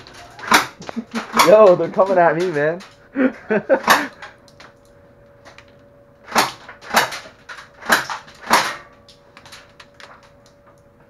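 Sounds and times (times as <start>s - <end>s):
faint steady hum: 0.0s - 11.0s
airsoft gun shots: 0.4s - 1.5s, 6.3s - 7.2s, 7.8s - 8.9s.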